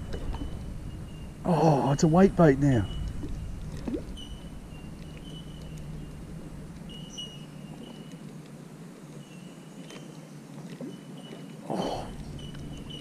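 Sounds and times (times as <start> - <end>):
low wind rumble: 0.0 - 9.4
small birds whistling: 2.0 - 6.2, 6.9 - 8.2, 10.8 - 13.0.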